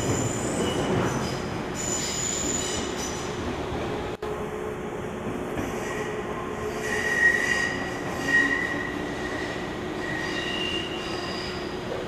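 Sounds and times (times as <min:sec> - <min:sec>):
train wheels squealing: 0:00.0 - 0:03.3, 0:06.7 - 0:12.0
train hum and rolling noise: 0:00.0 - 0:12.0.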